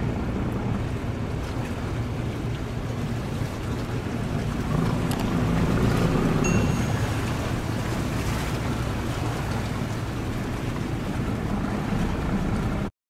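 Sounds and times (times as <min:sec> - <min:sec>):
low rumble: 0:00.0 - 0:12.9
sea water washing: 0:00.0 - 0:12.9
short high beep: 0:06.4 - 0:07.5.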